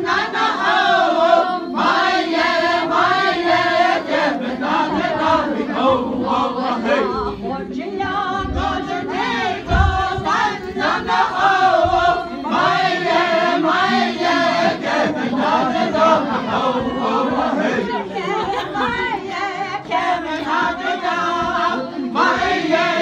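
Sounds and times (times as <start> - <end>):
group singing in unison: 0.0 - 23.0
dull low thump: 8.0 - 12.2.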